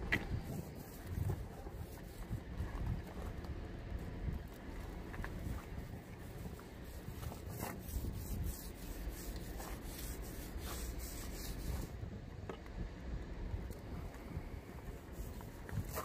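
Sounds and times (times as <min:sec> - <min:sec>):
laminating roller swishing: 0:00.0 - 0:03.3, 0:04.4 - 0:12.0, 0:14.8 - 0:16.0
low steady rumble: 0:00.0 - 0:16.0.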